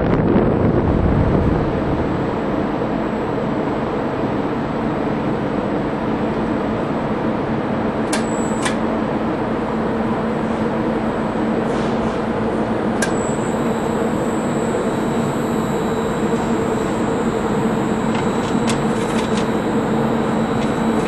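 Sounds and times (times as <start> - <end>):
low hum: 0.0 - 11.6, 12.2 - 21.0
mechanical rumble: 0.0 - 21.0.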